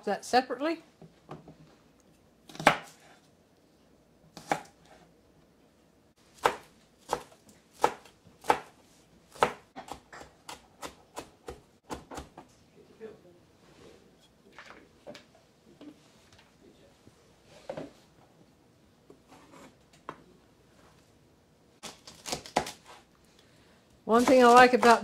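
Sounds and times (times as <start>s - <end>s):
knife chopping on cutting board: 2.5s - 3.0s, 4.4s - 5.0s, 6.4s - 8.7s, 9.3s - 12.4s.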